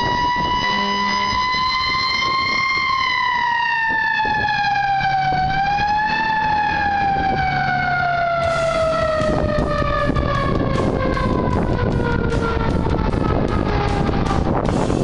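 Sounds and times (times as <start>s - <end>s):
ambulance siren wailing: 0.0s - 15.0s
low engine hum: 3.6s - 15.0s.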